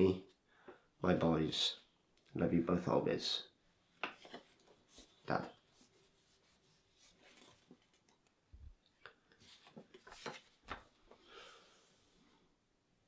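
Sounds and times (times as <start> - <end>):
soft breathy sound: 11.0 - 12.6.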